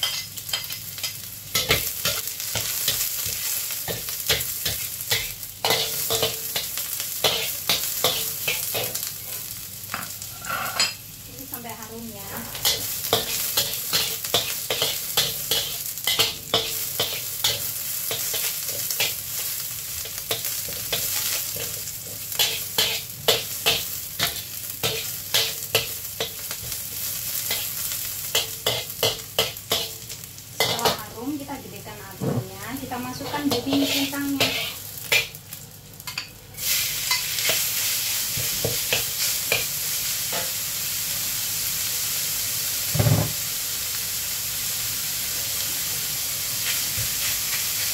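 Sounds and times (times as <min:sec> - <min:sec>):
metal spatula scraping wok: 0:00.0 - 0:09.5, 0:10.1 - 0:11.0, 0:12.1 - 0:26.8, 0:33.1 - 0:35.4
food sizzling in oil: 0:00.0 - 0:47.9.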